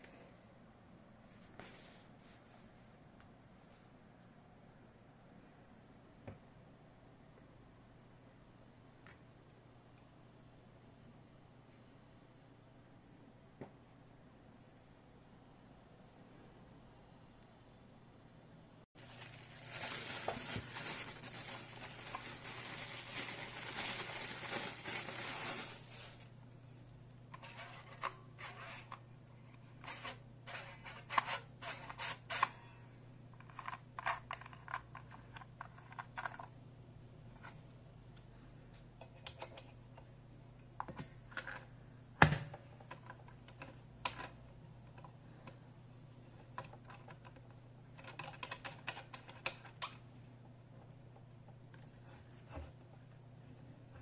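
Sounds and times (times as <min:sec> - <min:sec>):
plastic film crinkling: 0:19.0 - 0:27.0.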